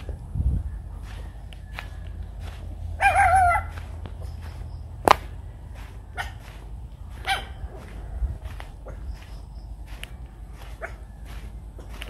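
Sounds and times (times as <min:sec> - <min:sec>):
rooster crowing: 0:00.0 - 0:04.6
steady low rumble: 0:00.0 - 0:12.0.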